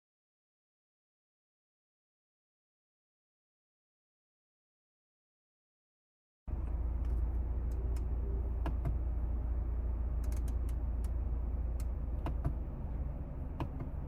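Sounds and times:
car cabin rumble: 0:06.5 - 0:14.0.

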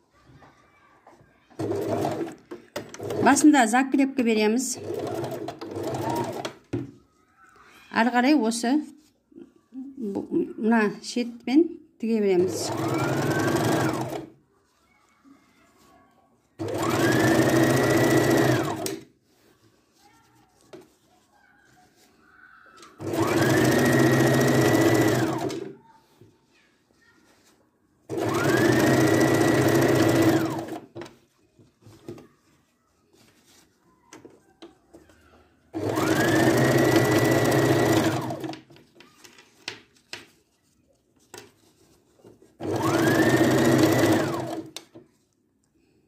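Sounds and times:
sewing machine stitching: 0:01.5 - 0:03.5, 0:04.7 - 0:06.6, 0:12.4 - 0:14.3, 0:16.6 - 0:19.1, 0:22.9 - 0:25.8, 0:28.1 - 0:31.0, 0:35.7 - 0:38.7, 0:42.6 - 0:44.8.

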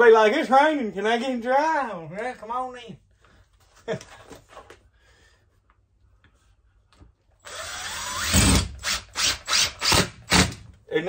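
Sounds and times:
cordless drill whining: 0:07.4 - 0:10.6.

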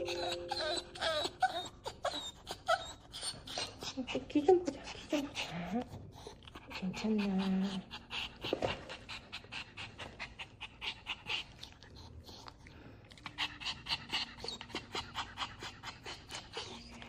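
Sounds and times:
dog panting: 0:00.0 - 0:17.0.

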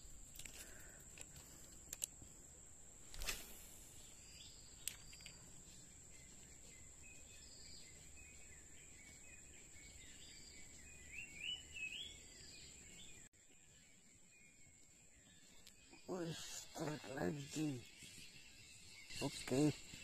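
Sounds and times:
bird chirping: 0:00.0 - 0:20.0
high insect drone: 0:15.3 - 0:20.0.

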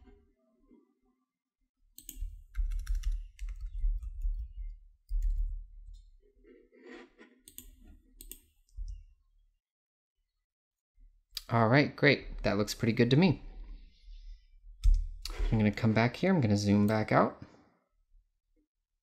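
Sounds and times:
typing on laptop keyboard: 0:02.0 - 0:04.5.

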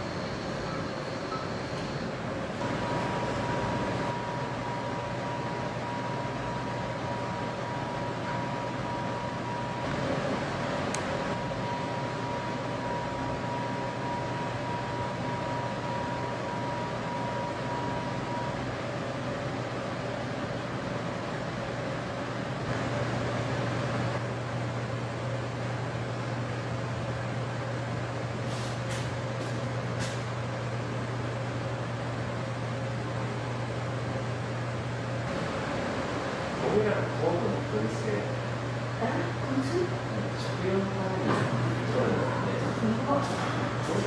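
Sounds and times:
faint high steady tone: 0:00.0 - 0:09.9
machinery hum and hiss: 0:00.0 - 0:44.0.

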